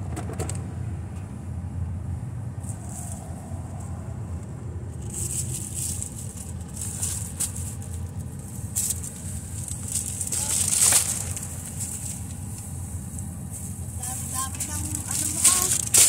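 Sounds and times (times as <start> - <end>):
steady low rumble: 0.0 - 16.0
plastic bags rustling: 5.0 - 12.8, 13.5 - 16.0.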